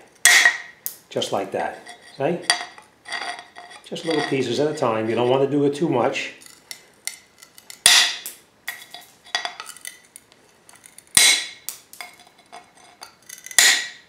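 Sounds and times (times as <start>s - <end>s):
tile nippers cracking tile: 6.4s - 14.0s.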